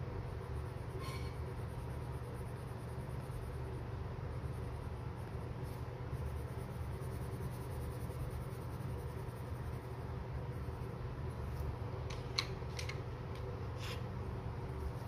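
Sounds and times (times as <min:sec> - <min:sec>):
low steady rumble: 0:00.0 - 0:15.0
pencil scratching on paper: 0:00.2 - 0:11.6.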